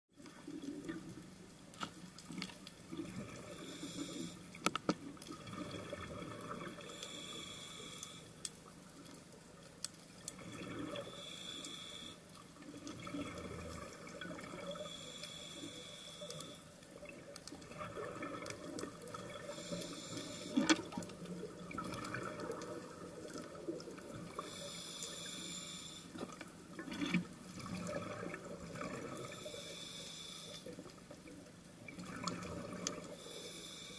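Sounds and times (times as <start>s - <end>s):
exhaled air bubbling: 2.8s - 7.2s, 10.2s - 11.3s, 12.6s - 15.1s, 16.8s - 29.7s, 30.7s - 33.3s
regulator inhalation hiss: 3.5s - 4.4s, 6.9s - 8.3s, 11.0s - 12.2s, 14.8s - 16.6s, 19.5s - 20.6s, 24.4s - 26.2s, 29.3s - 30.7s, 33.2s - 33.9s.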